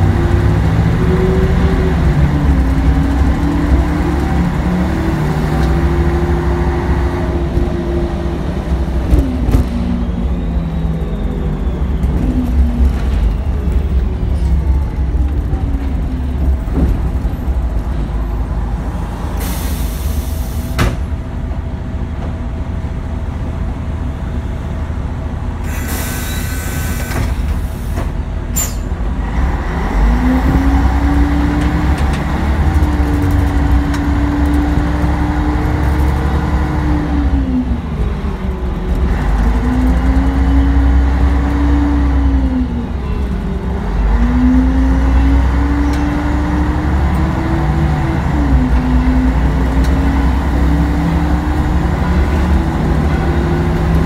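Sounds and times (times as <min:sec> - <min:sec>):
rising whining tone: 0:00.0 - 0:16.6
bus engine rumble: 0:00.0 - 0:54.0
air brake hisses: 0:19.3 - 0:20.8, 0:25.6 - 0:28.9.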